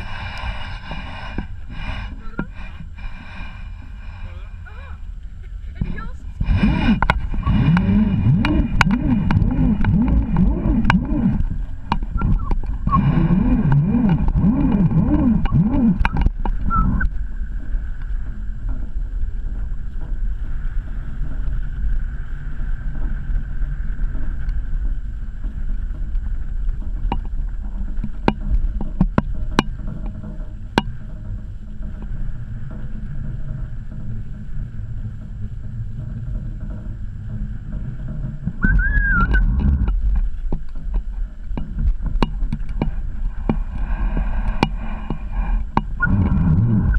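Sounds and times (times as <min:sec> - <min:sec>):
wavering low moan: 0:00.0 - 0:46.9
wind buffeting microphone: 0:00.0 - 0:46.9
sharp clicks: 0:06.6 - 0:17.2.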